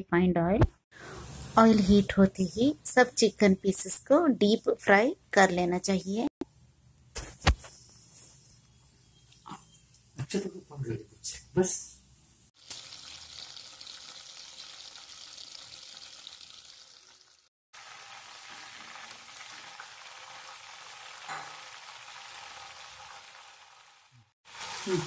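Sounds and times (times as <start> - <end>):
food deep-frying in oil: 12.6 - 25.0.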